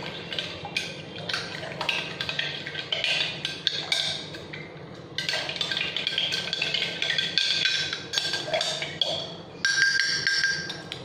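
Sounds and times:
spoon clinking against glass jar: 9.6s - 11.0s.

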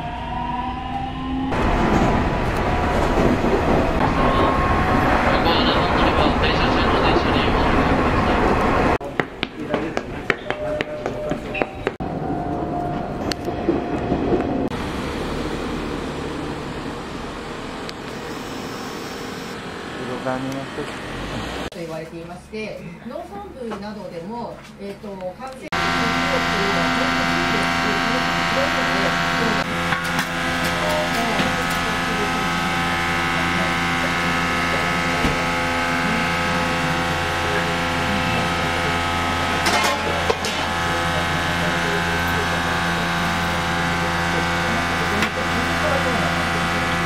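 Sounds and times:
traffic hum: 1.5s - 46.6s
kitchen equipment hum: 25.8s - 47.0s.

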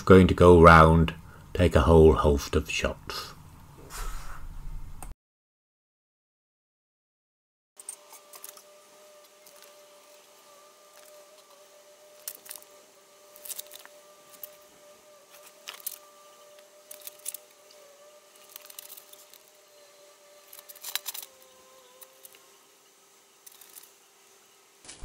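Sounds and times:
faint steady hum: 0.0s - 5.1s, 7.8s - 25.0s.

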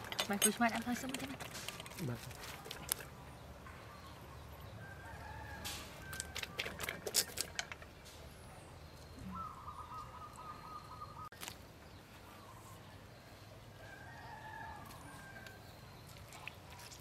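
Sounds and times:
rooster crowing: 4.8s - 6.4s.

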